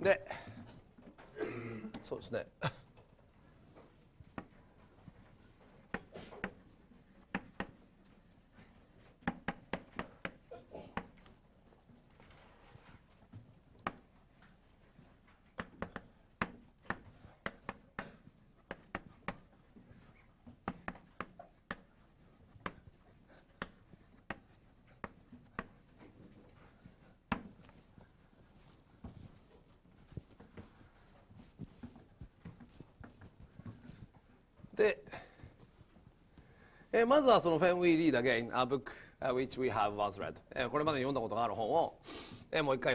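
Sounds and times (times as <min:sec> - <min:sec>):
chalk tapping and scratching: 0:03.4 - 0:34.7.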